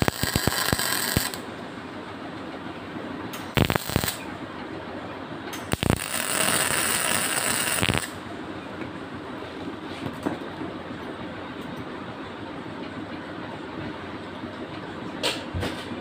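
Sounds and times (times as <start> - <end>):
electric welding arc: 0.0 - 1.4, 3.5 - 4.2, 5.7 - 8.2.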